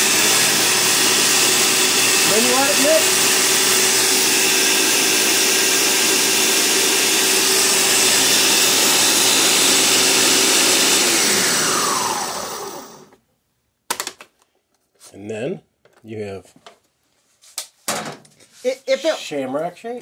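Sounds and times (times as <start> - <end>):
blender motor running: 0.0 - 13.2.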